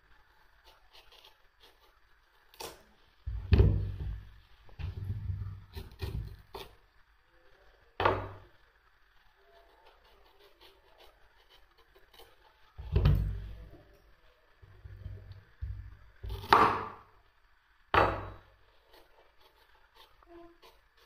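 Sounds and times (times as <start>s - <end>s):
knocks and thuds: 3.3s - 6.3s, 12.8s - 13.5s.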